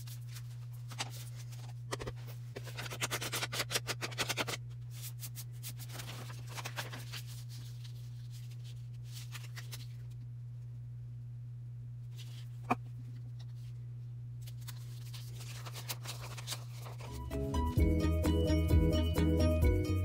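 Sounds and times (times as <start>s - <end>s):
paper being handled: 0.0s - 10.2s, 14.4s - 17.3s
steady low hum: 0.0s - 17.9s.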